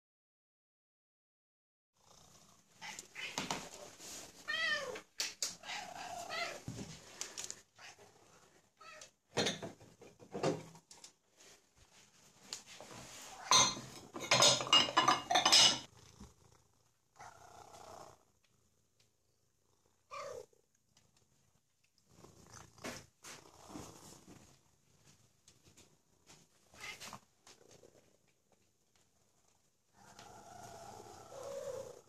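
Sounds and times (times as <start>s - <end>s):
cats meowing: 2.8s - 8.1s.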